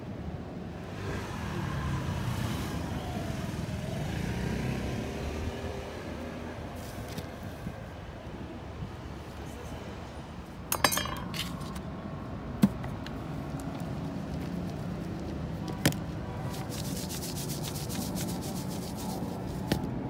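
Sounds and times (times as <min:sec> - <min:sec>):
seasoning shaker patter: 0:16.5 - 0:19.8.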